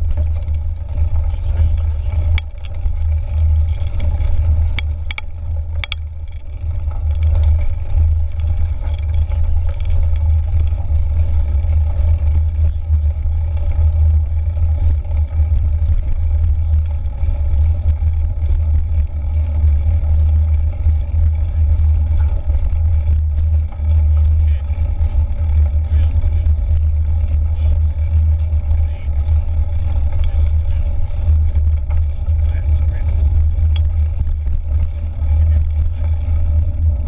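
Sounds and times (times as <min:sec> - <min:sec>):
bike rattling clicks: 0:00.0 - 0:37.0.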